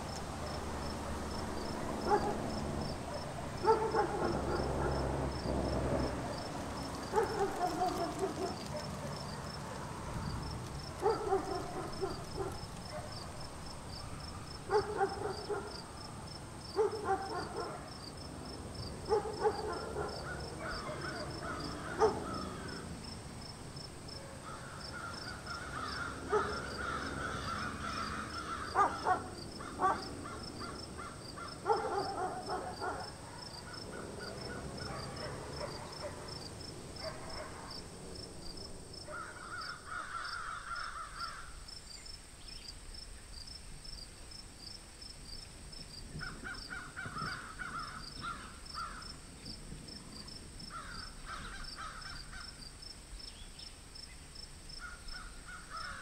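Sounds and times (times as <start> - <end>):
high insect chirp: 0.0 - 56.0
crows cawing: 7.0 - 8.7, 19.1 - 22.9, 24.4 - 33.0, 39.1 - 41.6, 46.2 - 49.2, 50.7 - 52.6, 54.8 - 56.0.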